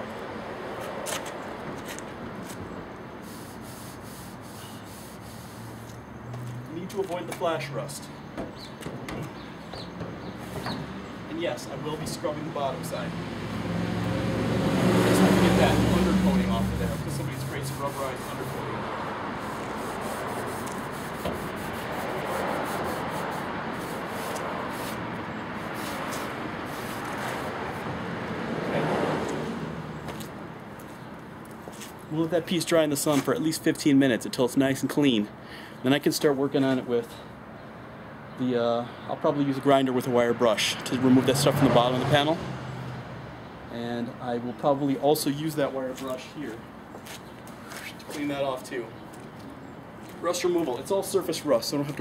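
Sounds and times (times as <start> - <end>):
cloth rubbing on wet metal: 3.2 - 6.0, 15.2 - 27.9.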